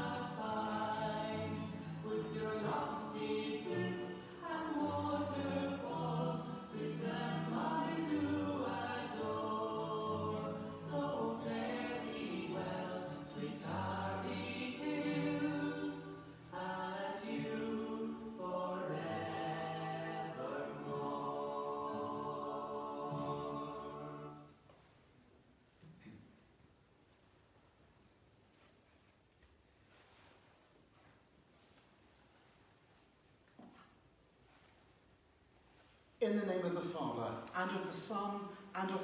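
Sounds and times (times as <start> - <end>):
choir singing held chords: 0.0 - 24.7.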